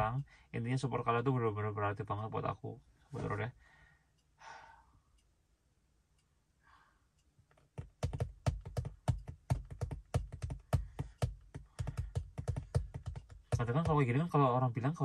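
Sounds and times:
quick taps and knocks: 7.6s - 14.3s.

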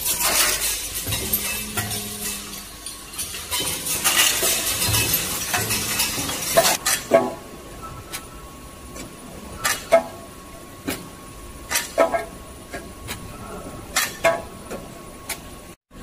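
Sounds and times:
metal screws rattling in machine: 0.0s - 7.0s.

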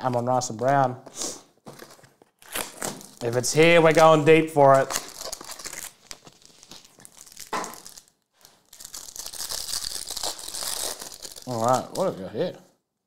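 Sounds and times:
plastic film crinkling: 1.6s - 12.4s.

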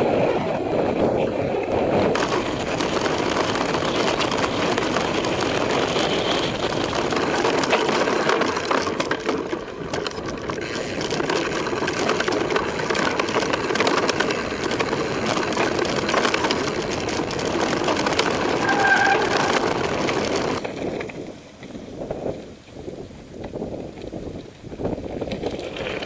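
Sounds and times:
bike rattling over stones: 0.7s - 26.0s
tyres crunching on gravel: 2.1s - 21.8s.

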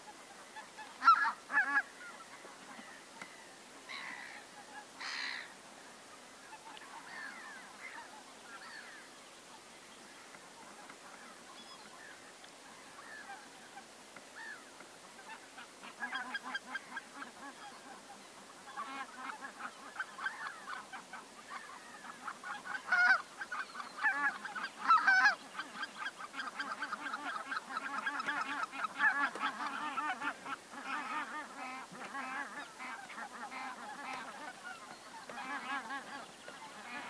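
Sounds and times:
geese honking: 0.5s - 2.9s, 15.2s - 37.0s.

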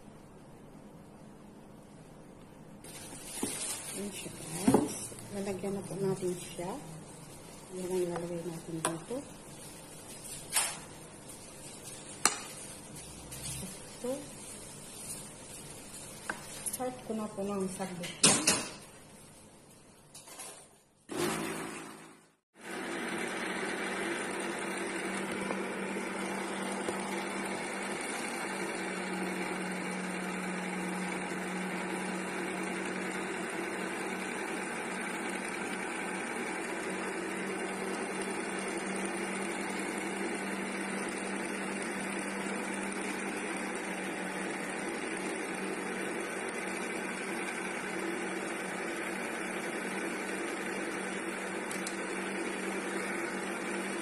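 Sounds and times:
electric meat grinder running: 21.1s - 54.0s.

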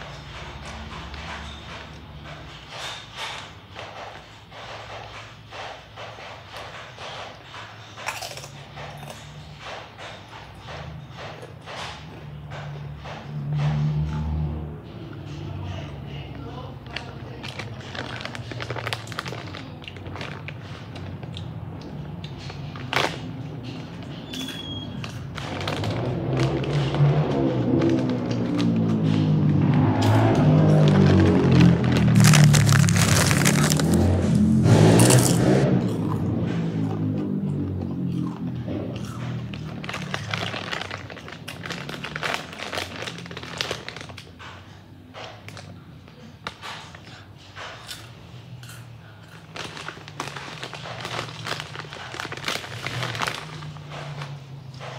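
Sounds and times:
chips crunching: 8.0s - 9.3s, 16.8s - 44.3s, 47.8s - 54.4s.

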